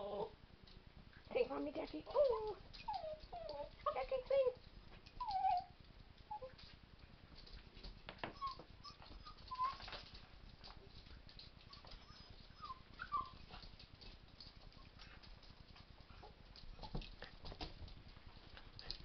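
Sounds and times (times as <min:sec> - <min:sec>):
puppies whining: 0:02.0 - 0:03.8, 0:05.2 - 0:06.6, 0:08.3 - 0:10.2, 0:11.6 - 0:13.6.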